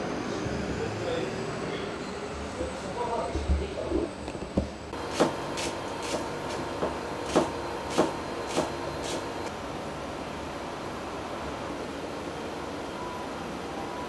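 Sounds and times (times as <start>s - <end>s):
kitchen hum: 4.5s - 9.5s
knife chopping on cutting board: 5.1s - 9.2s.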